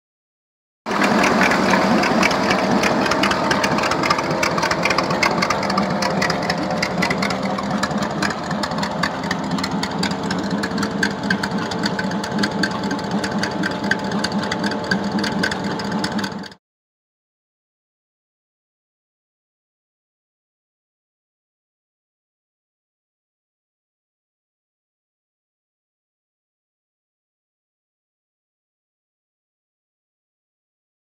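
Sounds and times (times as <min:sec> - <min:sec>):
rapid ticking clatter: 0:00.9 - 0:16.6
truck engine idling: 0:00.9 - 0:16.6.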